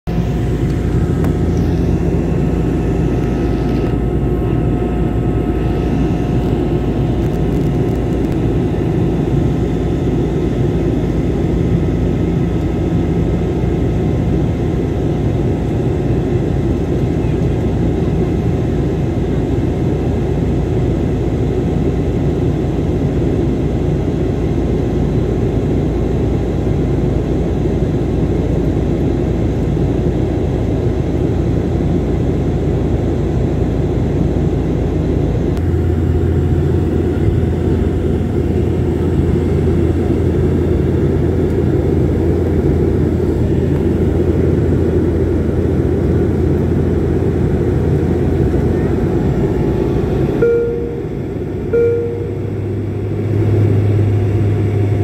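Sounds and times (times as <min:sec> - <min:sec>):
airliner cabin drone: 0:00.1 - 0:55.0
faint steady tones: 0:48.5 - 0:53.3.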